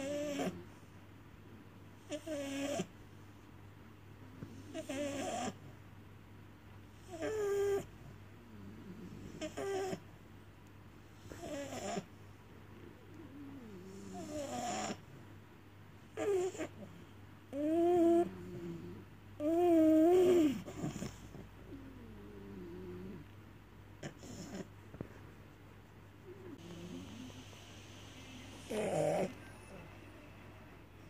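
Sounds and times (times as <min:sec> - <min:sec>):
dog whining and grumbling: 0:00.0 - 0:00.7, 0:02.0 - 0:02.9, 0:04.6 - 0:05.6, 0:07.0 - 0:08.0, 0:09.1 - 0:10.1, 0:11.2 - 0:12.1, 0:13.0 - 0:15.1, 0:16.1 - 0:23.3, 0:24.0 - 0:24.7, 0:28.2 - 0:30.0.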